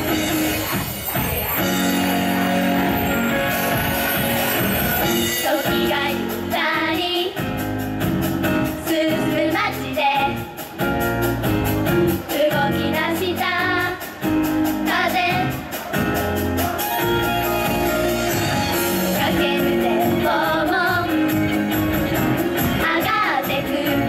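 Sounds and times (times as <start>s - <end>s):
pop backing music with beat: 0.0s - 24.0s
female voices singing pop: 5.4s - 7.6s, 8.7s - 10.6s, 12.3s - 14.1s, 19.1s - 21.6s, 22.7s - 24.0s.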